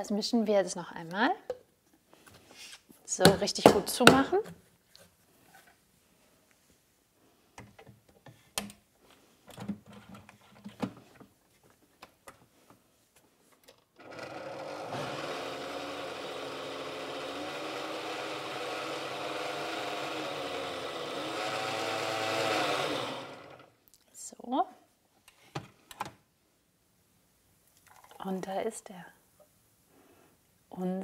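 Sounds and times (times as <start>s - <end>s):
blender running: 14.0s - 23.7s.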